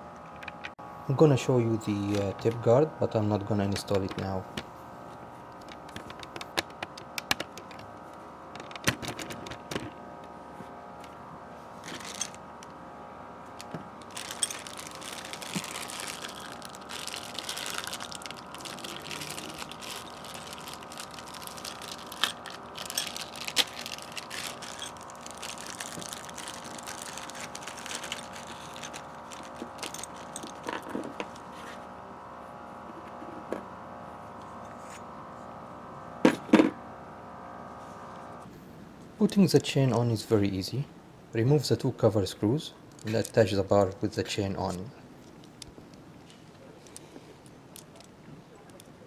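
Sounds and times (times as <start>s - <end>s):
plastic bag crinkling: 11.8s - 12.4s, 13.9s - 30.7s.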